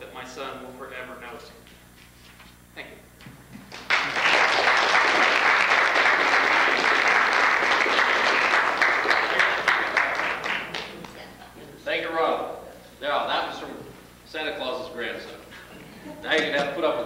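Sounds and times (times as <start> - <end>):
audience applauding: 3.7 - 11.2.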